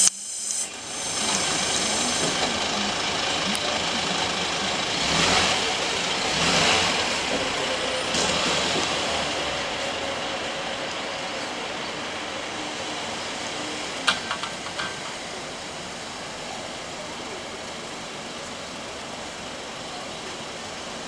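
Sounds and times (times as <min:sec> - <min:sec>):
bus diesel engine: 0:00.0 - 0:21.0.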